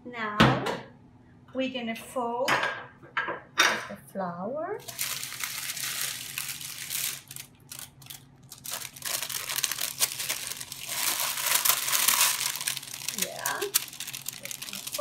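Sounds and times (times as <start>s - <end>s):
parchment paper crinkling: 4.8s - 15.0s.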